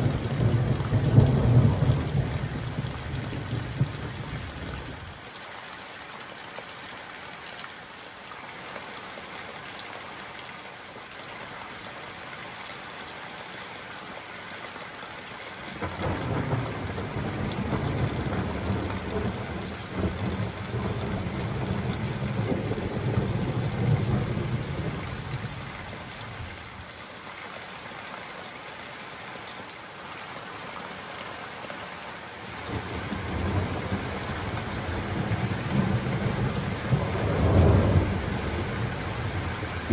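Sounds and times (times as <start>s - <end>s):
steady rain hiss: 0.0s - 39.9s
thunder rumbling: 15.8s - 25.5s.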